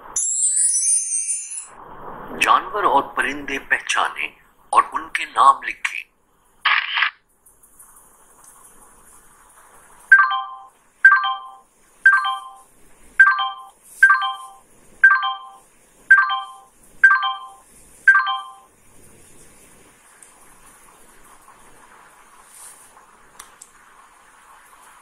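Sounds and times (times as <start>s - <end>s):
electronic chime: 0.1s - 1.8s, 10.1s - 12.6s, 13.2s - 18.7s.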